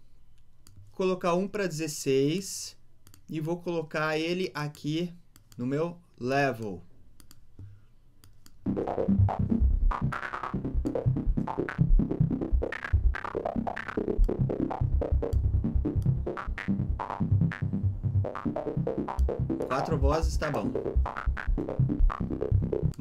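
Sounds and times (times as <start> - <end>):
pulsing filtered synth note: 8.7 - 23.0.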